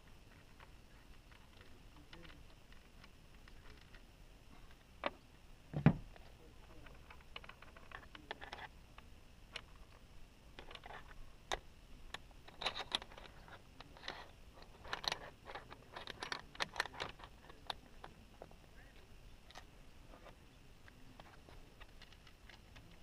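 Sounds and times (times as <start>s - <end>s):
low thump: 5.7s - 6.1s
metal parts clicking and rattling: 6.8s - 8.7s, 10.6s - 18.1s, 21.2s - 23.0s.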